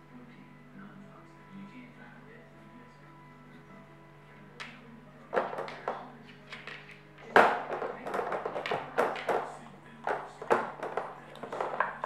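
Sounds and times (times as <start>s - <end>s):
puzzle toy lids knocking and clattering: 7.3s - 9.5s, 10.1s - 12.0s.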